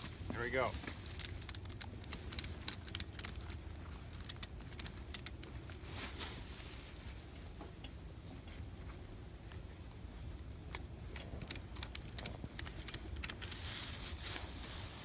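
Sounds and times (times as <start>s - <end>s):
ratchet strap clicking: 1.1s - 5.8s, 10.7s - 13.7s.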